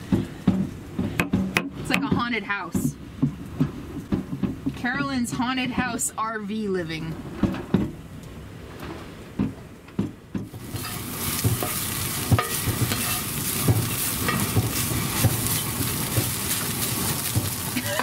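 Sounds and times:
sharp knocks: 8.8s - 10.6s
food sizzling in a skillet: 10.5s - 18.0s
spatula scraping a pan: 10.6s - 18.0s.

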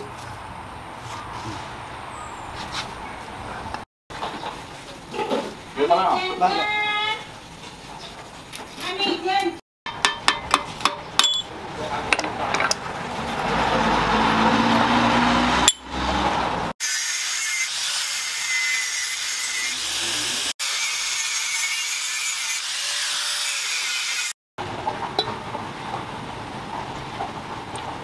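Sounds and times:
angle grinder cutting steel: 16.8s - 24.4s.

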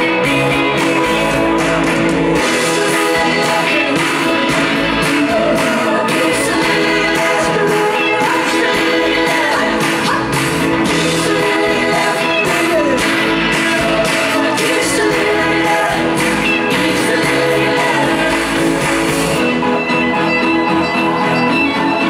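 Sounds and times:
steady drum beat: 0.0s - 19.4s
person singing: 0.0s - 19.5s
electric guitar: 0.0s - 22.0s.

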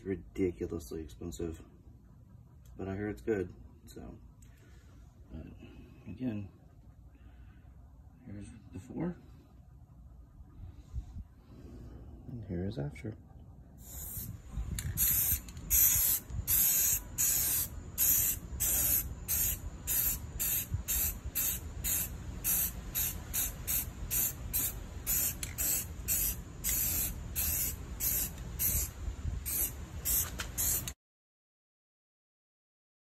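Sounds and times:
aerosol spray can hissing in bursts: 13.8s - 31.0s.

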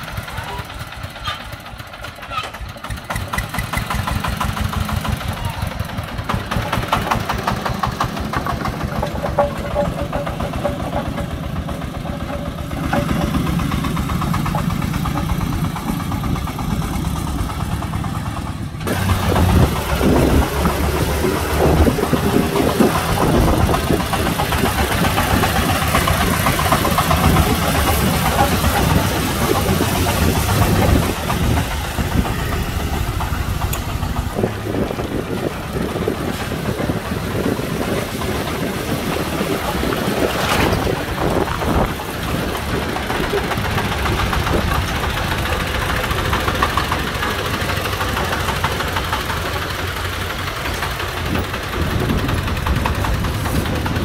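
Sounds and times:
diesel engine puttering: 0.0s - 54.0s
loud burst of noise: 13.4s - 54.0s.

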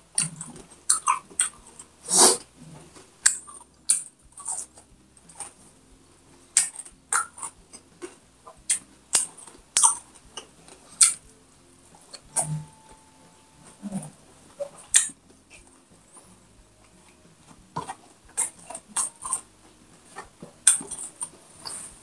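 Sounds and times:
wet chewing and lip smacks: 0.2s - 2.4s.

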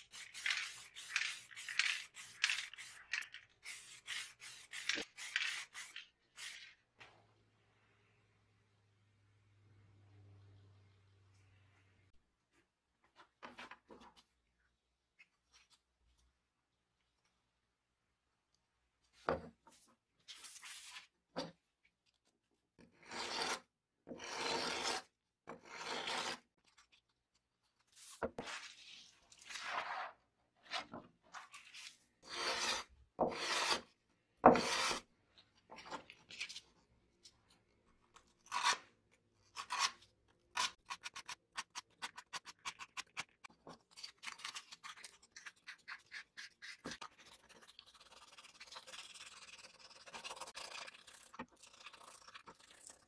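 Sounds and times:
sandpaper rubbing: 0.0s - 6.6s.

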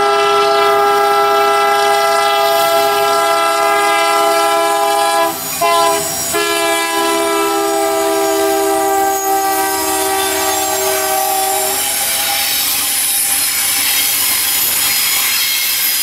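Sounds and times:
locomotive air horn: 0.0s - 12.6s
rumble of passing train: 0.0s - 16.0s.

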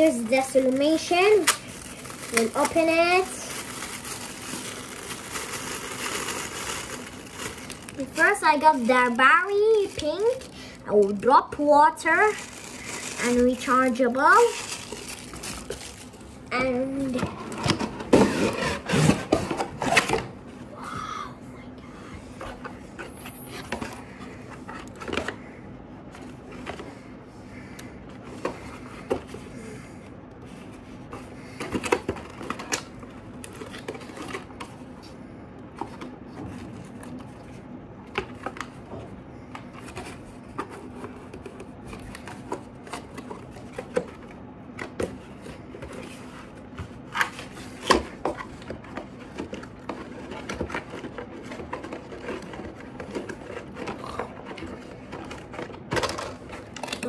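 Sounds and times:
steady low hum: 0.0s - 57.0s
cardboard packaging handled: 0.4s - 10.6s, 12.1s - 16.2s.

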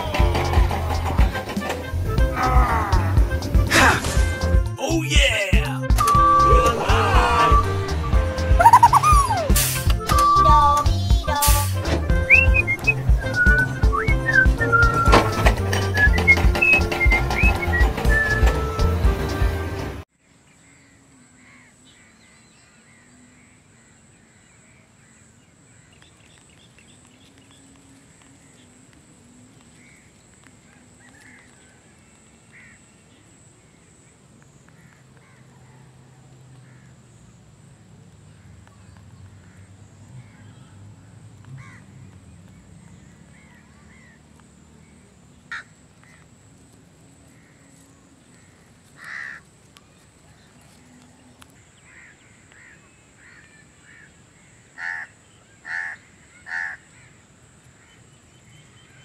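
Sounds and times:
short bird calls: 12.2s - 18.4s.

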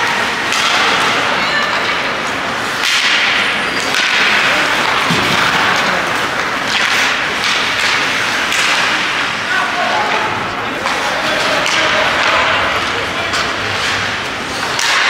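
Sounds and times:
skate blades scraping ice: 10.8s - 15.0s
sticks cracking on puck: 13.3s - 15.0s.

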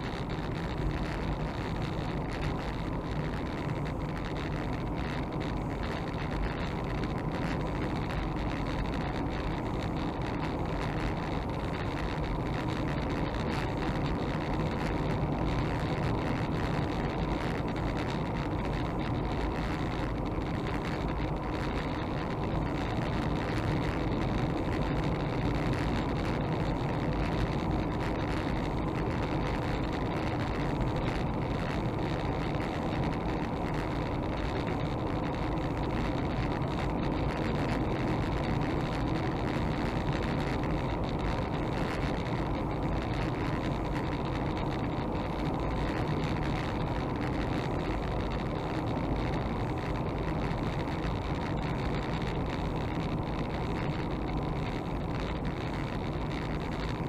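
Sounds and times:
car engine and tyre noise: 0.0s - 57.0s.

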